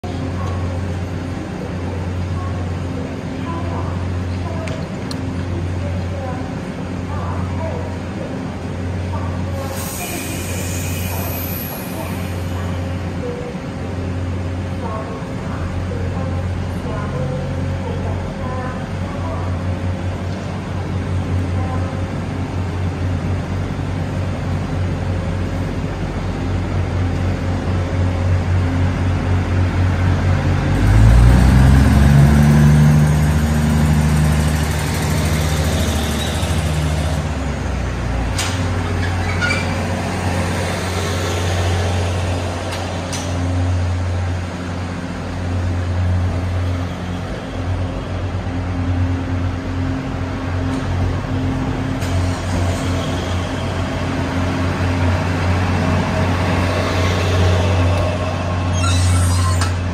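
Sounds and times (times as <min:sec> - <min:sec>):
diesel train engine revving: 0:16.4 - 0:59.9
train cars rolling past: 0:22.2 - 0:59.9.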